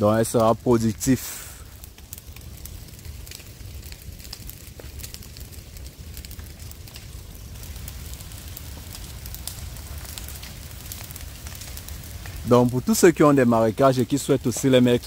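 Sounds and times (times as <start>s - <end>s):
fire crackling and popping: 0.0s - 15.0s.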